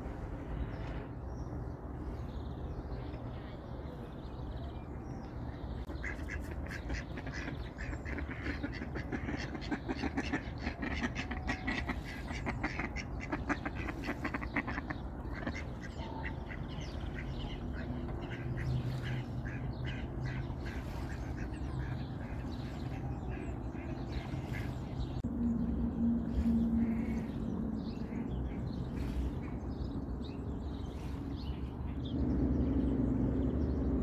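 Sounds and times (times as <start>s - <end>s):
ducks quacking: 5.9s - 25.2s.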